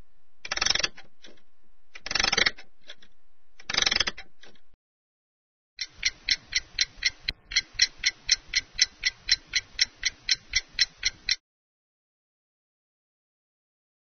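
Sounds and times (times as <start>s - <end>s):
clock ticking fast: 5.8s - 11.4s.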